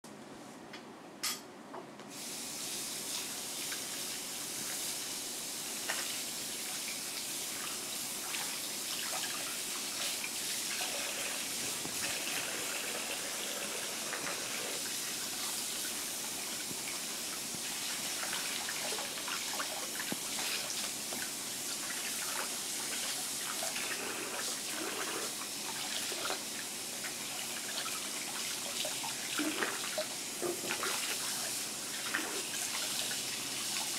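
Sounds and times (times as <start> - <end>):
tap water splashing into sink: 28.9 - 31.3.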